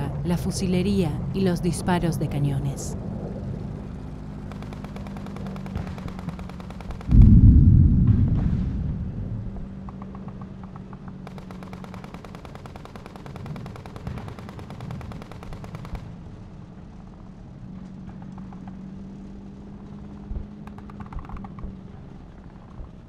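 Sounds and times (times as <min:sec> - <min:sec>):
low steady hum: 0:00.0 - 0:23.0
scattered gunshots: 0:04.5 - 0:07.4, 0:11.2 - 0:16.1
machine-gun fire: 0:04.5 - 0:08.6, 0:11.2 - 0:16.1.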